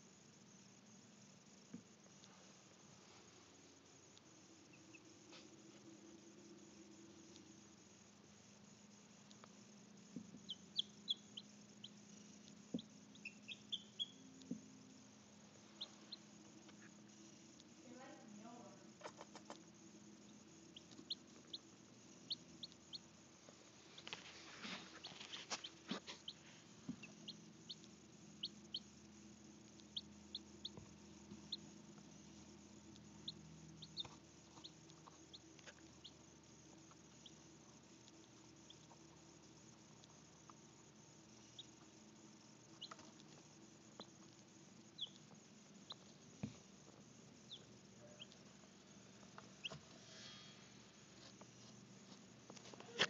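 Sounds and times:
faint low hum: 0.0 - 53.0
baby chicks peeping: 4.6 - 5.1, 10.3 - 14.5, 15.8 - 17.0, 19.0 - 19.6, 20.2 - 23.2, 24.6 - 28.9, 29.7 - 40.6, 41.5 - 41.9, 42.6 - 43.4, 44.0 - 46.1, 46.8 - 48.4, 49.2 - 49.8
beaks pecking plastic feeder: 10.1 - 14.6, 15.8 - 42.0, 42.6 - 48.5.

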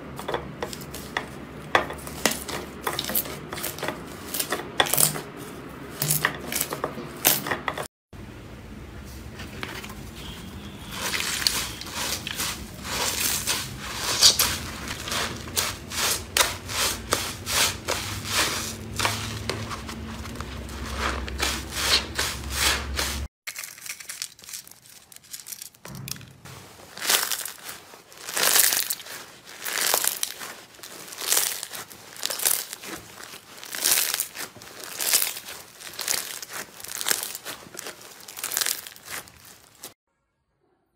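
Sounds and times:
wet sponge squeezed: 10.8 - 23.7, 26.6 - 40.0.

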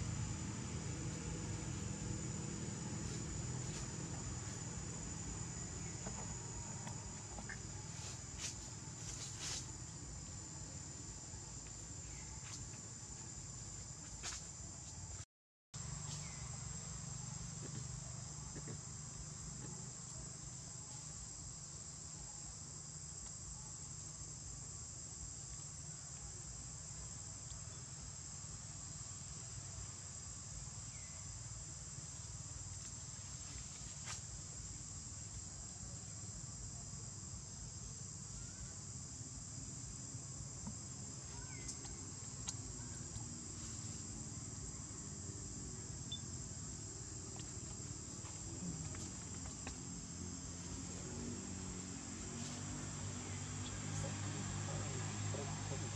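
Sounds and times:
low background rumble: 0.0 - 13.7
high-pitched insect drone: 0.0 - 14.6, 32.7 - 55.9.

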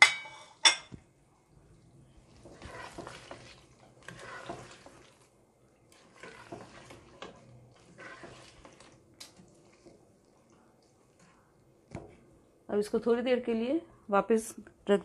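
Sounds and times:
spoon stirring thick gravy: 1.0 - 12.5.

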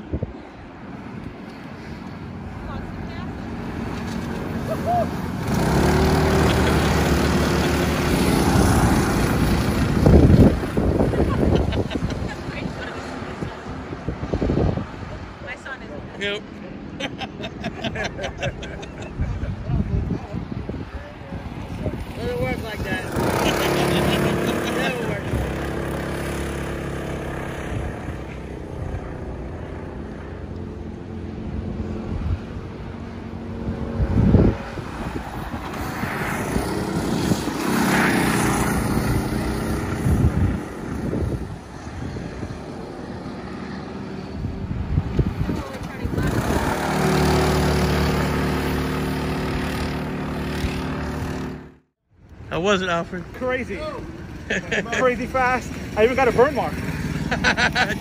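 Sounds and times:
go-kart engine running and revving: 3.4 - 14.2, 21.7 - 51.8, 53.8 - 58.0.

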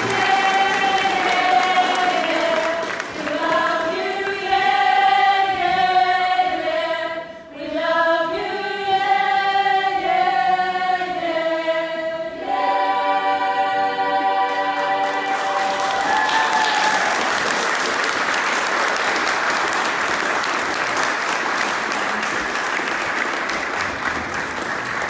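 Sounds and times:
group singing in harmony: 0.0 - 17.2.

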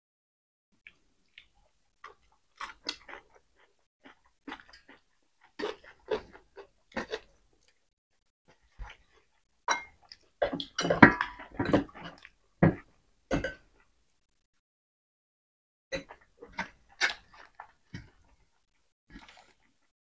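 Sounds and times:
chewing and lip-smacking: 0.8 - 7.9, 16.6 - 19.9.

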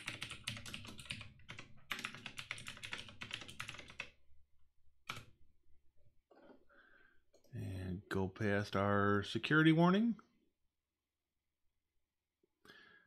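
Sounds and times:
typing on keyboard: 0.0 - 4.2, 5.1 - 5.4.

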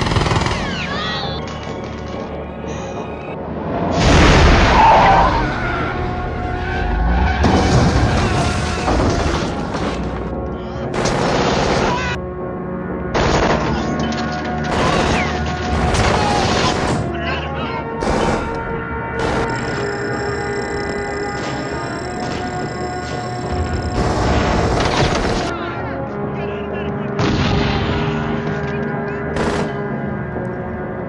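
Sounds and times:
film music score: 0.0 - 31.0
car crashing through glass: 7.3 - 10.1
automatic rifle fire: 13.2 - 13.8, 29.4 - 29.8.

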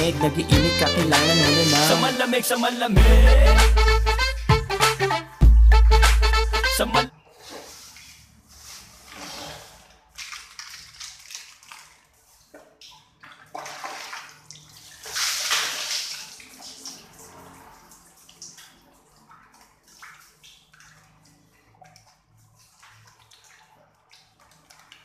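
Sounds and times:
water splashing on tiled floor: 7.1 - 25.0.

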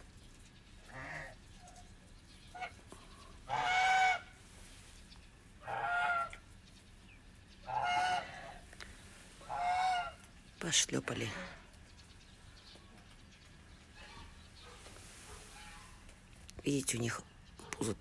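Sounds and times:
geese honking: 2.5 - 4.4, 5.6 - 6.5, 7.6 - 8.7, 9.3 - 10.3, 13.9 - 16.2.

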